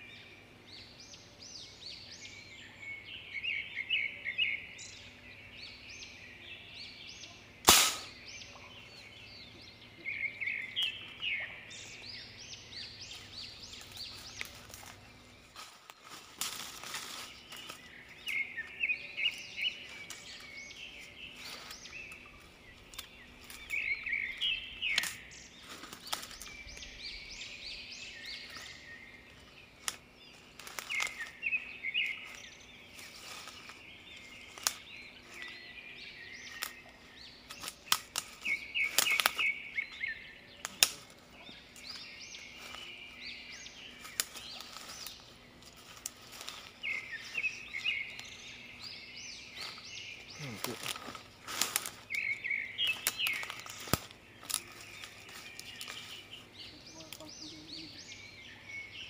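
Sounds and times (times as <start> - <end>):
birds chirping: 0.0 - 59.0
footsteps on dry leaves: 10.4 - 58.5.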